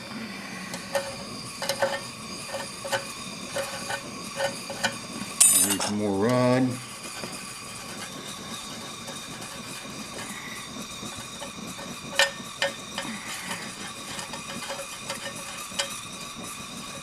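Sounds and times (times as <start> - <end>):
metal rod scraping molten metal: 0.0 - 17.0
torch flame hissing: 0.0 - 17.0
rod tapping metal pipe: 11.2 - 16.0.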